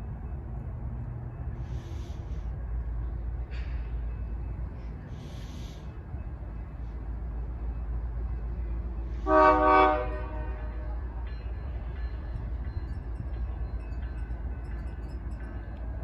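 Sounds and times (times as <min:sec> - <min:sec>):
low rumble of approaching train: 0:00.0 - 0:16.0
locomotive horn blast: 0:09.2 - 0:11.0.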